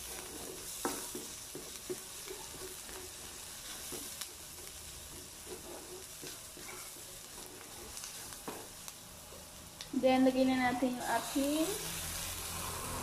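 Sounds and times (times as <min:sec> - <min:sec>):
spatula scraping and tapping pan: 0:00.0 - 0:08.9
onions sizzling in oil: 0:00.0 - 0:13.0.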